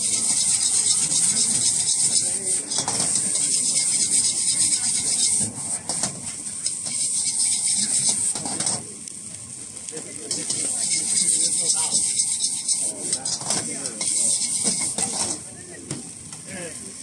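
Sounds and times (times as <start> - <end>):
metal ladle scraping a wok: 0.0 - 8.8, 10.2 - 15.5
rice sizzling: 0.0 - 17.0.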